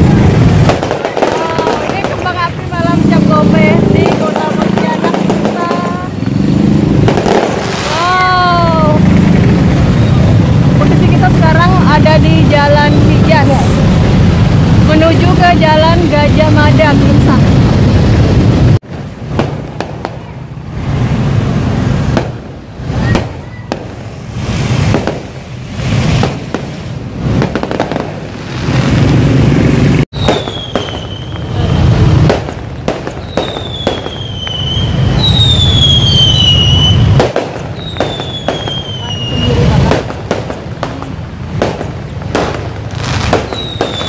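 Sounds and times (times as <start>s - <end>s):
fireworks bangs and crackling: 0.0s - 44.0s
falling firework whistles: 22.9s - 26.5s, 30.1s - 31.9s, 33.0s - 39.8s, 43.0s - 44.0s.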